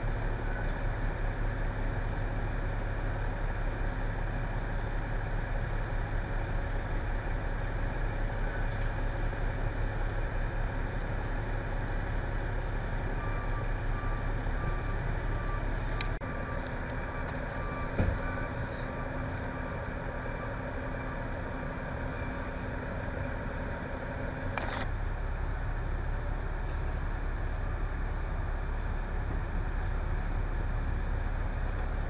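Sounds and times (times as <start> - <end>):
vehicle engines idling: 0.0 - 32.0
short beeps: 13.2 - 21.3.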